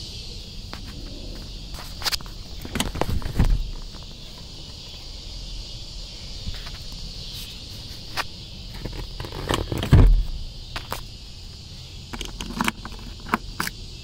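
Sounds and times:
insects droning: 0:00.0 - 0:14.0
loud thump: 0:03.2 - 0:03.8, 0:09.9 - 0:10.4.

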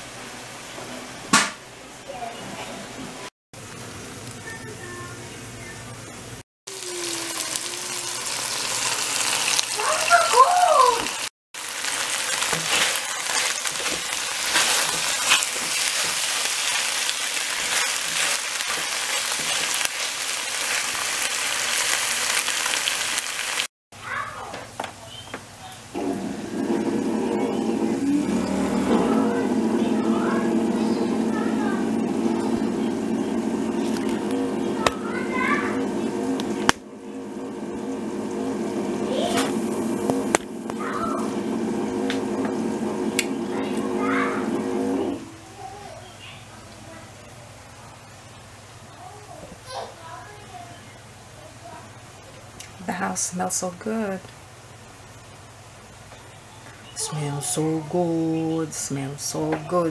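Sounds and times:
stir fry sizzling in a frying pan: 0:06.7 - 0:23.7
spatula turning food: 0:06.8 - 0:23.0, 0:25.9 - 0:45.2
faint children's voices: 0:27.2 - 0:36.2, 0:40.7 - 0:41.4, 0:43.4 - 0:52.6, 0:56.4 - 0:58.4.

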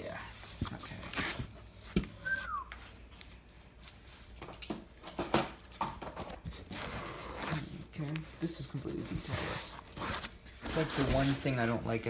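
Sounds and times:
plastic wrapping rustling: 0:05.6 - 0:12.0.

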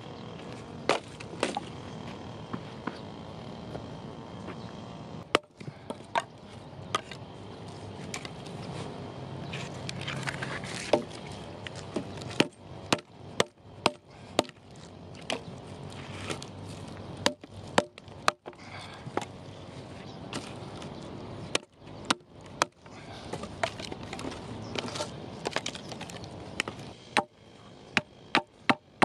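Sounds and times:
hatchet chopping logs: 0:00.8 - 0:03.9, 0:05.2 - 0:07.3, 0:10.7 - 0:15.5, 0:17.2 - 0:19.4, 0:21.5 - 0:29.0
wood crackling: 0:09.6 - 0:27.3.

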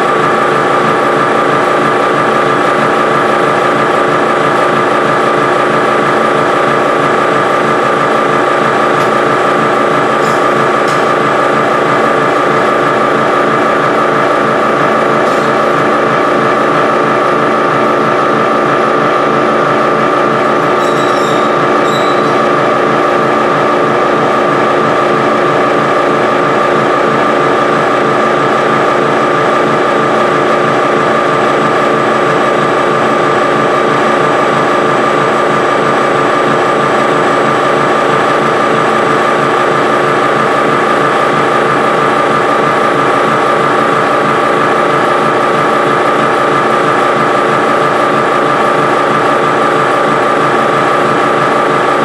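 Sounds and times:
mixer machine drone: 0:00.0 - 0:52.0
high squeak: 0:20.6 - 0:22.6.

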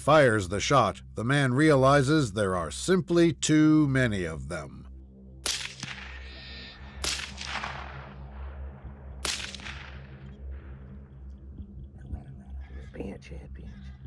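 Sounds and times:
gunshots with echo: 0:05.4 - 0:08.4, 0:09.2 - 0:10.4.

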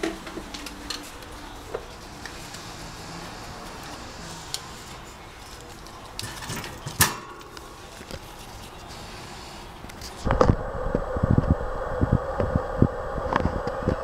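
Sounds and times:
light clicks and rustling: 0:03.8 - 0:08.9
wire cage clacking: 0:04.5 - 0:07.6.

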